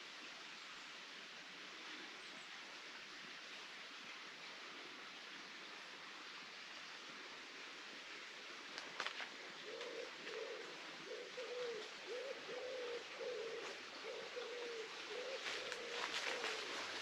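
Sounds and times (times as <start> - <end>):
faint ticks: 8.7 - 10.0
pigeon cooing: 9.6 - 17.0.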